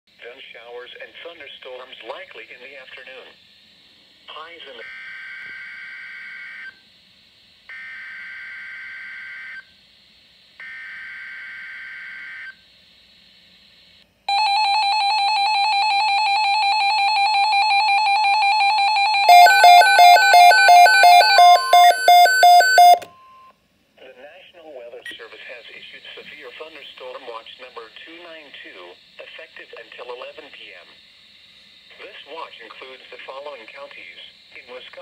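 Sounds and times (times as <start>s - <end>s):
loud steady alert tone: 14.3s - 23.1s
rapid electronic alarm beeps: 14.3s - 23.5s.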